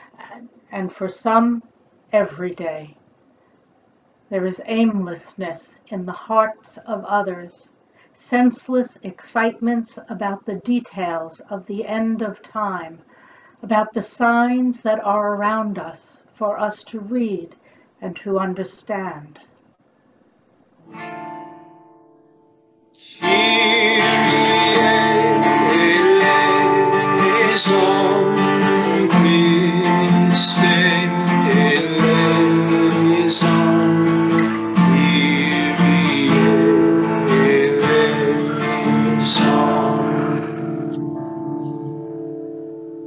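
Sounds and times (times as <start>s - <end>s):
acoustic guitar strumming: 20.8s - 43.0s
man singing: 23.0s - 40.7s.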